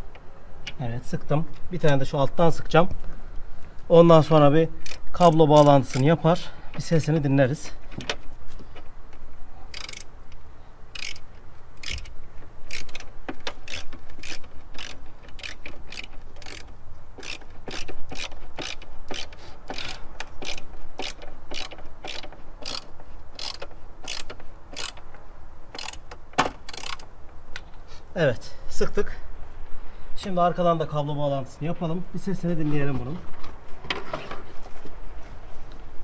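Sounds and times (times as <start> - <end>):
ratcheting screwdriver clicking: 9.7 - 10.1, 11.0 - 25.0, 25.7 - 27.1.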